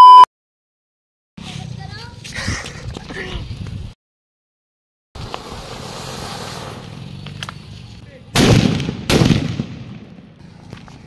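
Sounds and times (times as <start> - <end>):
fountain firework hissing: 5.2 - 7.2
firecracker bangs: 8.4 - 10.1.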